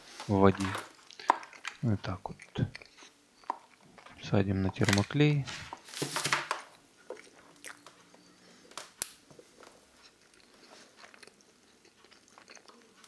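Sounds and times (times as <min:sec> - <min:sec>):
plastic parts clicking and rustling: 0:00.5 - 0:01.9, 0:04.0 - 0:06.7.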